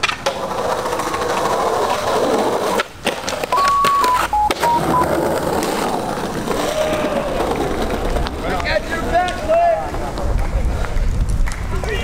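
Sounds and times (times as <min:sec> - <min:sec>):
electronic beeps: 0:03.5 - 0:05.2.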